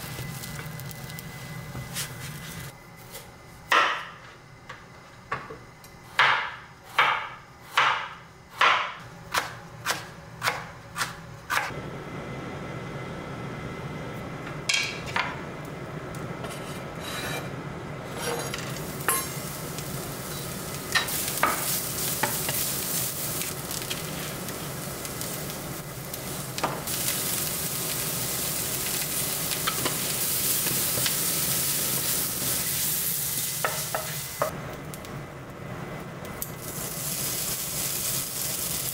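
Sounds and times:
carrot sizzling in a frying pan: 0.0s - 2.8s, 15.3s - 38.9s
knife chopping on wooden board: 6.2s - 11.7s.

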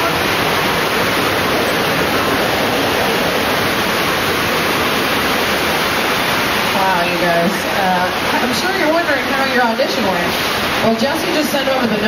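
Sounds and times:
water rushing and pouring: 0.0s - 12.0s.

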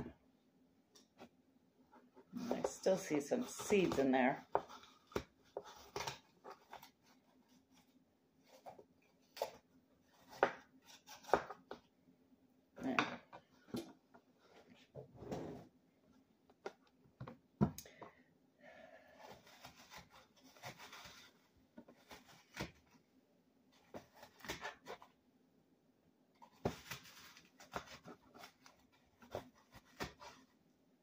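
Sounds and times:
knife scraping apple core: 2.3s - 7.0s, 8.5s - 11.7s, 19.1s - 22.9s, 26.8s - 30.5s.

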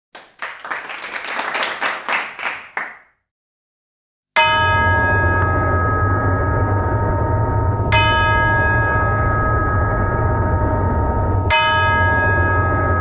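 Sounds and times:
large bell ringing: 4.4s - 13.0s
low drone: 4.5s - 13.0s.

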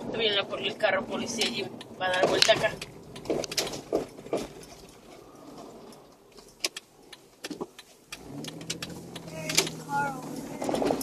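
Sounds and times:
sharp clicks: 6.3s - 11.0s.

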